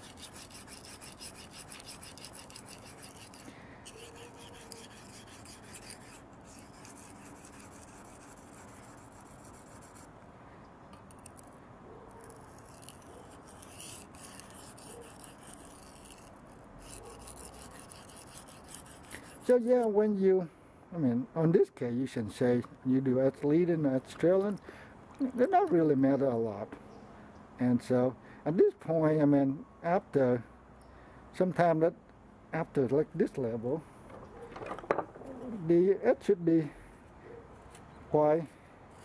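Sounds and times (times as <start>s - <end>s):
knife scraping on sharpening stone: 0.0s - 10.0s, 12.3s - 19.5s.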